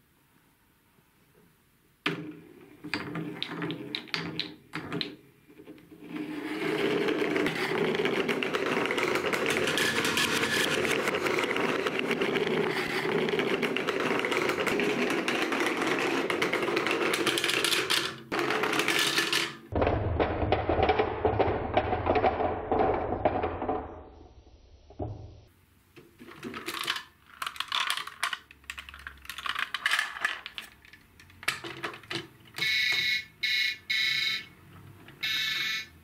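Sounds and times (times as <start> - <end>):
balls rattling down marble run: 2.8 - 24.0, 26.2 - 33.2.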